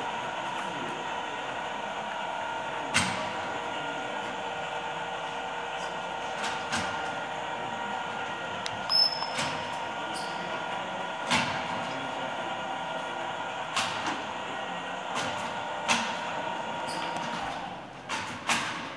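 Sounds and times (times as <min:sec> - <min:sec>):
mechanical hum and whine of gears: 0:00.0 - 0:18.9
brief high beep: 0:08.9 - 0:09.5.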